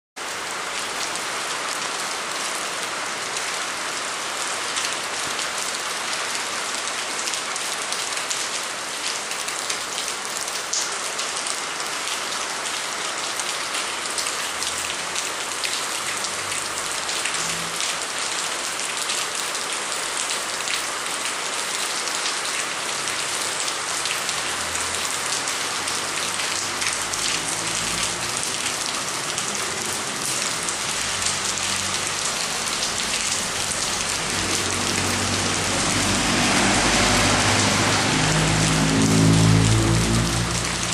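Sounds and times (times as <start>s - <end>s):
rain on paved ground: 0.2s - 40.9s
raindrops ticking: 13.3s - 40.9s.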